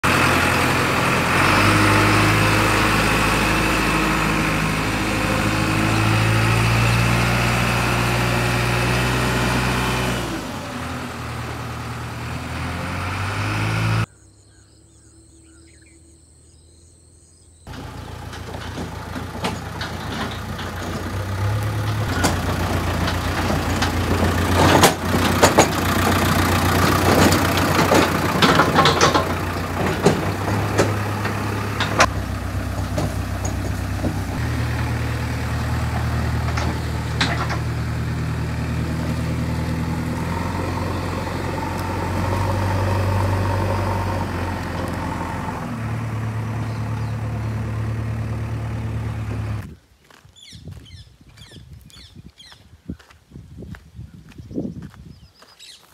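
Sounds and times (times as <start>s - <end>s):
backhoe diesel engine running: 0.0s - 14.2s, 17.6s - 50.2s
sharp knocks and clatter: 17.7s - 35.0s, 35.7s - 37.8s.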